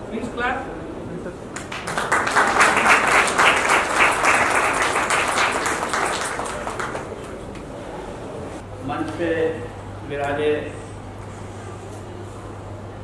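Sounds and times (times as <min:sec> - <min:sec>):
audience applauding: 0:01.5 - 0:07.7.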